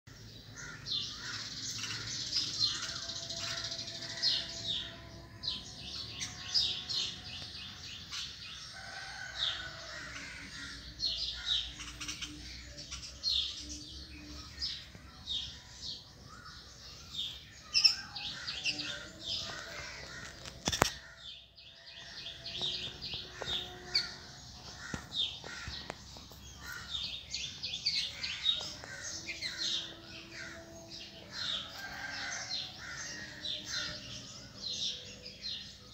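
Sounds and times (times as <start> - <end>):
small birds chirping: 0.1 - 35.9.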